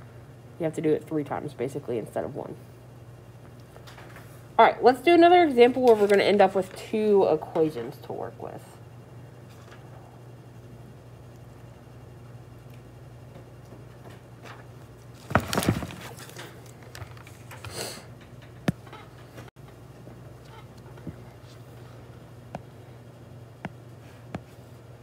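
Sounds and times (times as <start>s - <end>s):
steady low hum: 0.0s - 25.0s.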